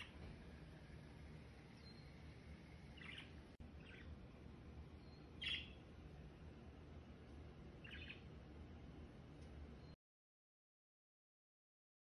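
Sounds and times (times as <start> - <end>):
small bird chirping: 0.0 - 0.3, 1.2 - 6.1, 7.7 - 8.5
quiet low hum: 0.0 - 10.0.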